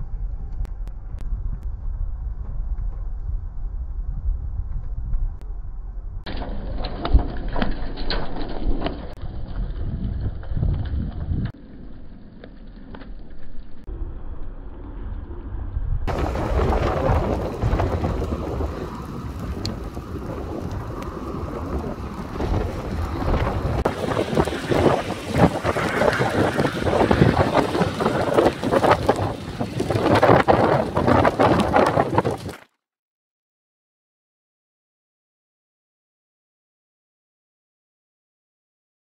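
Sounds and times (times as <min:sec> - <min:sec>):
wind buffeting microphone: 0:00.0 - 0:06.3, 0:15.2 - 0:32.6.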